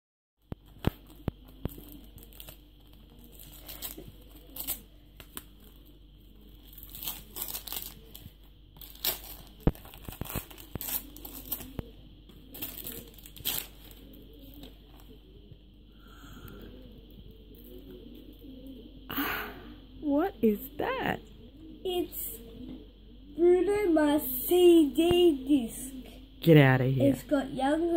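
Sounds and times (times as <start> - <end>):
wrapping paper tearing: 0.9 - 14.7.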